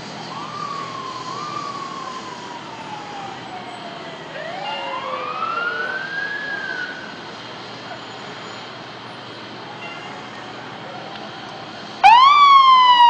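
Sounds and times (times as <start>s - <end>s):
fire truck sirens wailing: 0.0s - 13.0s
higher siren tone: 0.3s - 7.2s, 12.0s - 13.0s.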